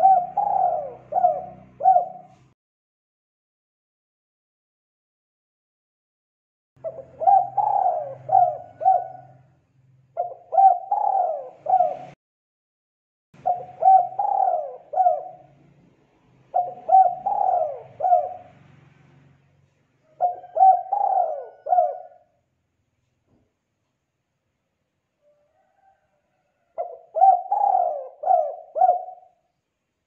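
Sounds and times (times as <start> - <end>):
dove cooing: 0.0 - 2.5, 6.8 - 9.5, 10.1 - 12.2, 13.4 - 15.5, 16.5 - 18.6, 20.0 - 22.4, 25.2 - 29.5.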